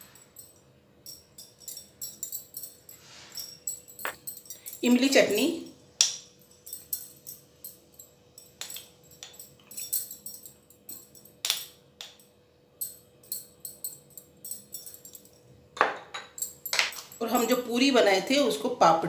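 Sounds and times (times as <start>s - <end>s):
bangles jingling: 0.0s - 17.8s.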